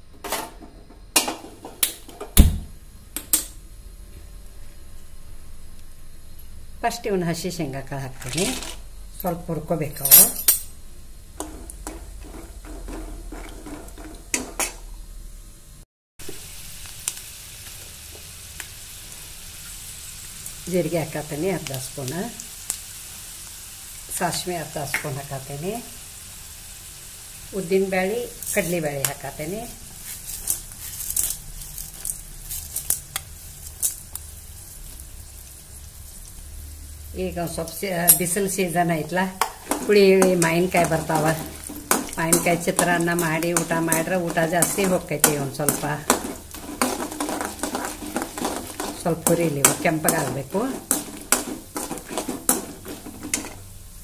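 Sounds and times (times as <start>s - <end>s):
hot oil sizzling: 1.0s - 54.0s
peanuts frying in oil: 6.6s - 54.0s
sharp crackles and pops: 16.2s - 20.6s, 29.8s - 35.5s
metal spoon clinking on pan: 39.4s - 53.6s.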